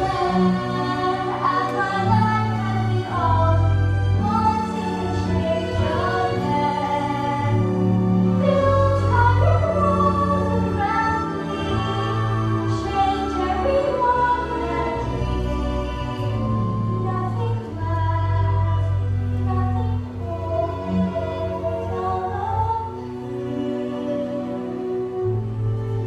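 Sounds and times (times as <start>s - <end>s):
instrumental accompaniment: 0.0s - 26.0s
girl singing: 8.4s - 23.0s.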